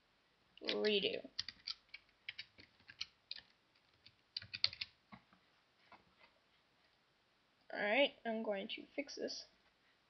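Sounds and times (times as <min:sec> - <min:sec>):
typing on keyboard: 0:00.6 - 0:05.0.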